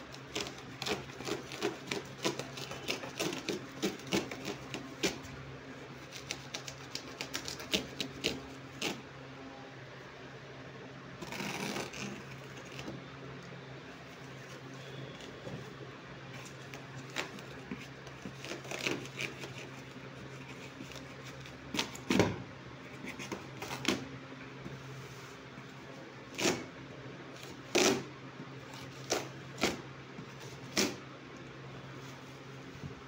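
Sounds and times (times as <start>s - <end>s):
low steady hum: 0.0s - 33.0s
plastic sack ripping with knife: 11.2s - 12.8s.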